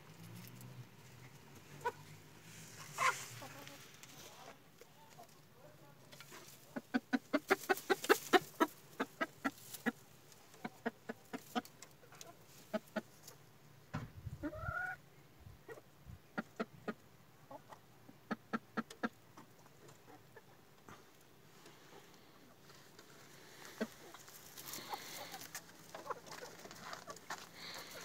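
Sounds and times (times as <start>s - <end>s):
hen clucking: 1.8s - 2.1s, 2.8s - 4.1s, 6.2s - 13.4s, 14.4s - 15.0s, 15.6s - 21.0s, 23.3s - 28.0s.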